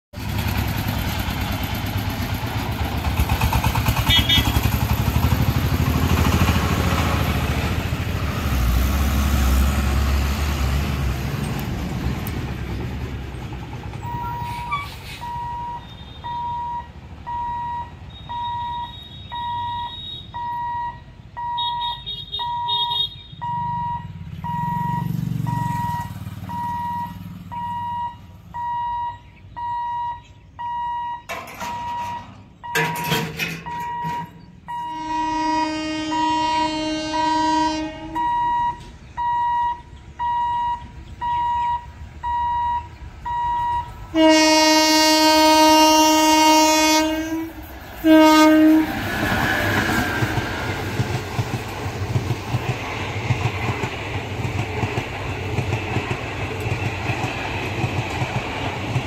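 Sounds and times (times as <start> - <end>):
road traffic rumbling: 0.2 - 59.0
level crossing beeper: 14.1 - 45.1.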